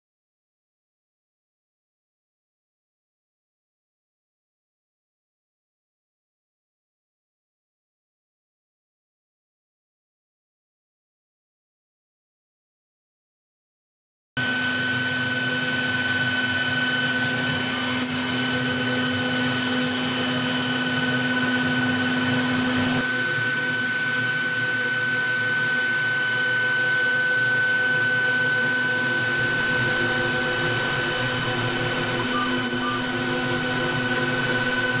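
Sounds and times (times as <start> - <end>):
cnc router spindle whining: 14.4 - 35.0
low hum: 14.4 - 35.0.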